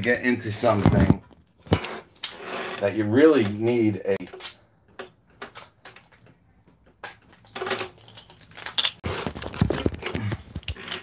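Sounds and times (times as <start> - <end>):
small items clicking and rattling: 4.2 - 11.0.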